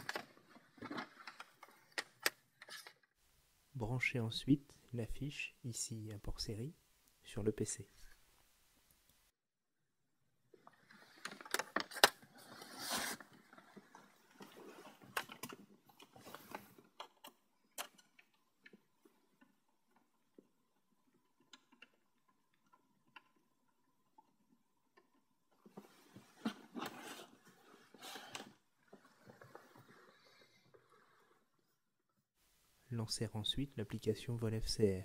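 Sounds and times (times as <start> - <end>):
cable handling rustling: 0.0 - 3.1, 10.6 - 20.5.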